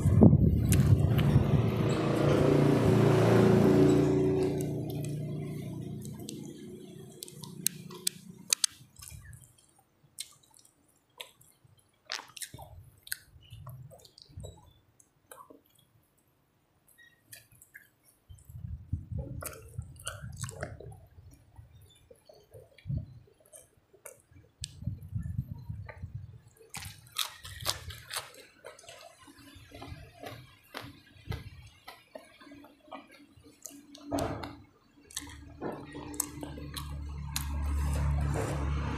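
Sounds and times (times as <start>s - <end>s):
person chewing wetly: 0.0s - 1.4s, 4.4s - 15.9s, 19.2s - 24.8s, 25.9s - 38.8s
lip smacks: 6.0s - 14.3s, 19.3s - 21.0s.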